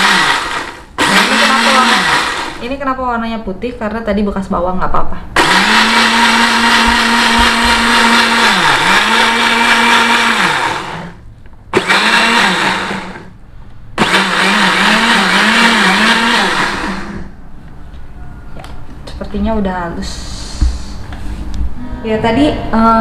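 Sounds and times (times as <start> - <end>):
electric blender grinding: 0.0 - 2.6, 5.4 - 13.3, 14.0 - 17.3.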